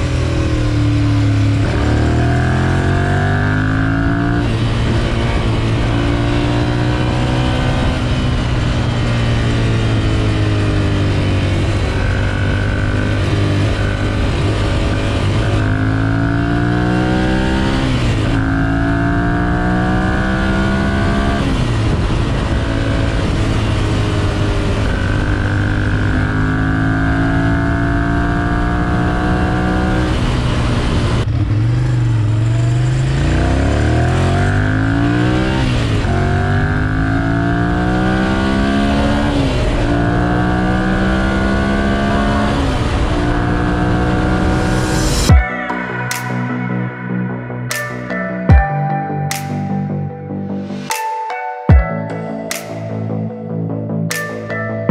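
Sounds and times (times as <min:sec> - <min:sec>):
motorcycle engine accelerating: 0:00.0 - 0:50.9, 0:52.6 - 0:54.9.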